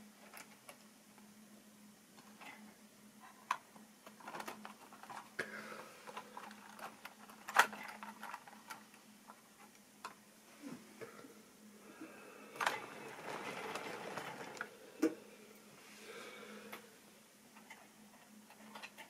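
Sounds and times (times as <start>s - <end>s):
faint steady hum: 0.0s - 19.0s
plastic wagons clicking and knocking: 12.6s - 15.1s.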